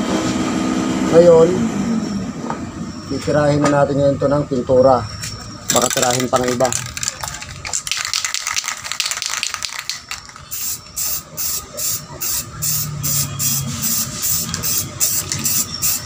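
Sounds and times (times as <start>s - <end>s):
spray paint can hissing: 5.7s - 16.0s.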